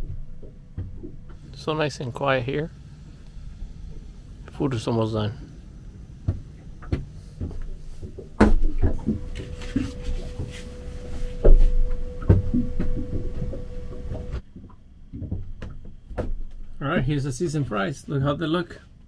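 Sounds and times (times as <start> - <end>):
faint steady tone: 0.0 - 14.4.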